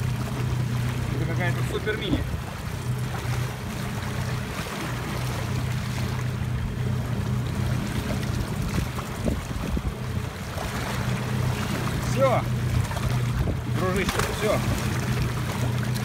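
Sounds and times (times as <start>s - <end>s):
boat engine humming: 0.0s - 16.0s
water sloshing and splashing: 0.0s - 16.0s
fish thrashing at surface: 14.0s - 16.0s.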